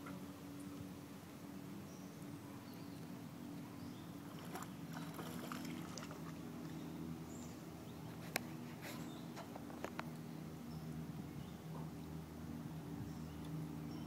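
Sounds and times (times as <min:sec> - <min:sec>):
steady low hum: 0:00.0 - 0:14.0
light water splashes: 0:02.2 - 0:10.3.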